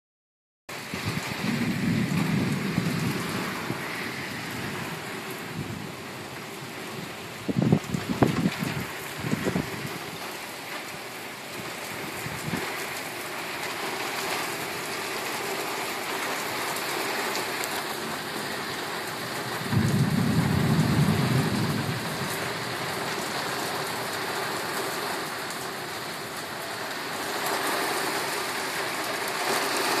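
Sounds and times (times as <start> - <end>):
rain falling: 0.7 - 30.0
thunder rolling: 0.8 - 10.0, 18.0 - 24.2.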